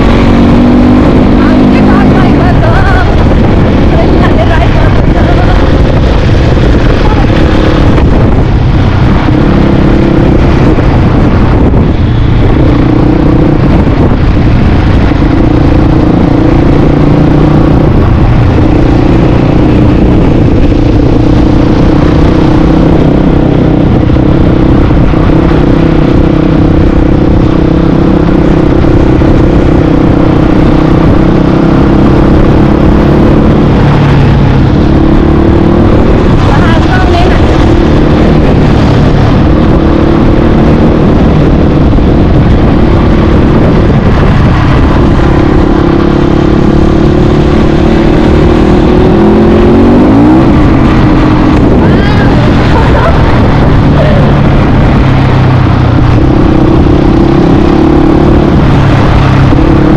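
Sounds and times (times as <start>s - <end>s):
dirt bike engine running: 0.0s - 59.9s
low rumbling noise: 0.0s - 59.9s.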